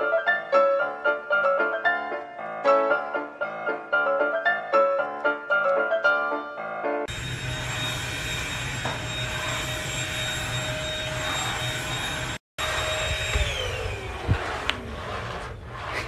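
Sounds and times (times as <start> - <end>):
vacuum cleaner whine: 7.1 - 15.6.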